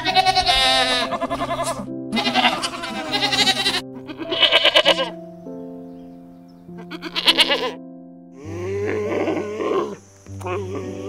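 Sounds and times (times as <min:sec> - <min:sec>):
goat bleating: 0:00.0 - 0:05.2, 0:06.9 - 0:07.8
soft background music: 0:00.0 - 0:11.0.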